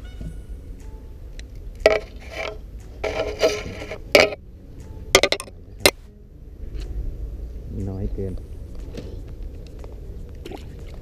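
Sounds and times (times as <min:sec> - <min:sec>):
hard objects clicking and knocking: 0:01.8 - 0:04.4, 0:05.1 - 0:06.0
rattle: 0:01.8 - 0:04.4, 0:05.1 - 0:06.0.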